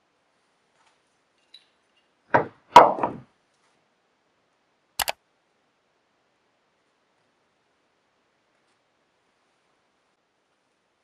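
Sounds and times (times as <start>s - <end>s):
wooden knocks on workbench: 2.3s - 3.2s.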